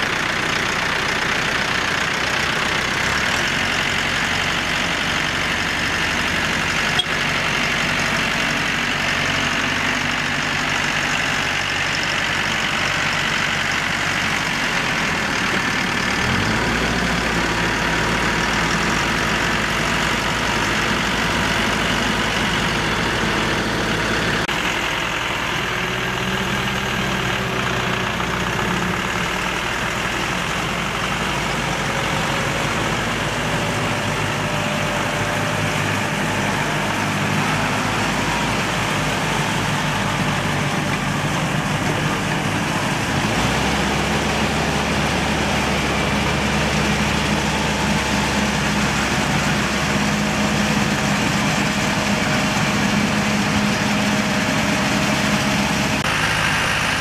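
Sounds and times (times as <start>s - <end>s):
rotary tiller churning mud: 0.0s - 57.0s
tractor diesel engine running: 0.0s - 57.0s.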